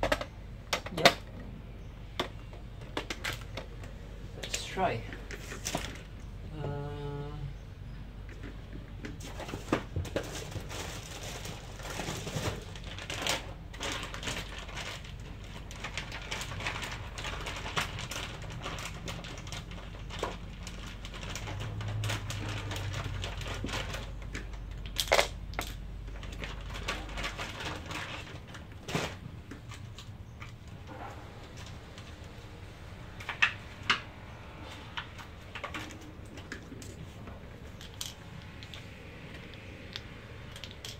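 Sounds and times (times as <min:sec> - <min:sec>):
plastic parts clicking and rattling: 0:00.0 - 0:01.4, 0:02.2 - 0:06.2, 0:08.2 - 0:30.9, 0:34.8 - 0:40.9
batteries clinking on tiled floor: 0:09.2 - 0:30.6, 0:35.5 - 0:40.9.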